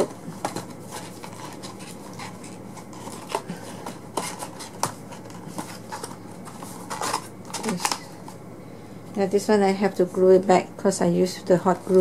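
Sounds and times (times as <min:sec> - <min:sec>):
paper rustling and rubbing: 0:00.0 - 0:08.1.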